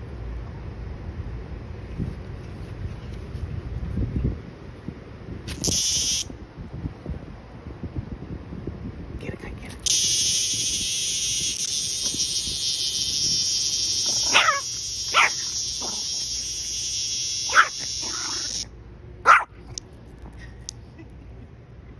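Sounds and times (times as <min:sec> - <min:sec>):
cicada buzzing: 0:05.5 - 0:06.3, 0:09.8 - 0:18.7
dog barking: 0:14.1 - 0:16.0, 0:17.5 - 0:18.5, 0:19.2 - 0:19.5.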